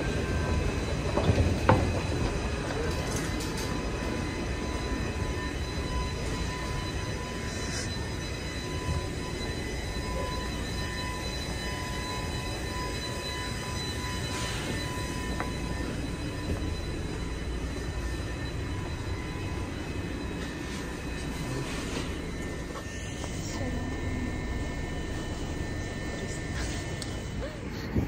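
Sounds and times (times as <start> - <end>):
high-pitched whines: 0.0 - 28.0
low rumble of train equipment: 0.0 - 28.0.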